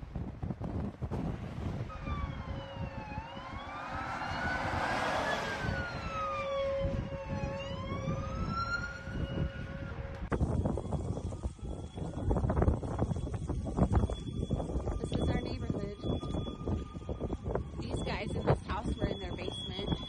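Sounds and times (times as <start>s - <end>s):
wind buffeting microphone: 0.0s - 20.0s
siren wailing: 1.8s - 20.0s.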